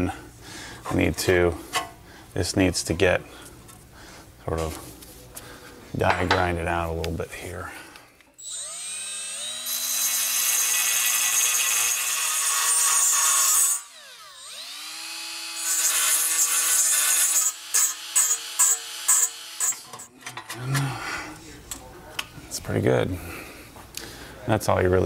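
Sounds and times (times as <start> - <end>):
die grinder grinding steel: 8.4 - 20.1.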